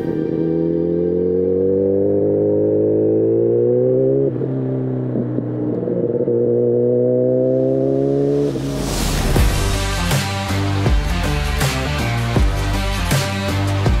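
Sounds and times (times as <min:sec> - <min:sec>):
motorcycle engine accelerating: 0:00.0 - 0:10.8.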